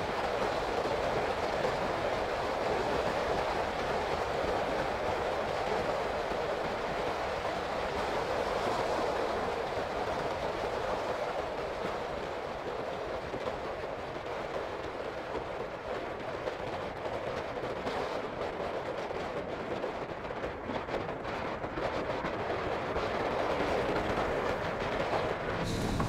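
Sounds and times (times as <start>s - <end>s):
rushing wind: 20.0s - 26.0s
motorcycle road noise: 25.2s - 26.0s.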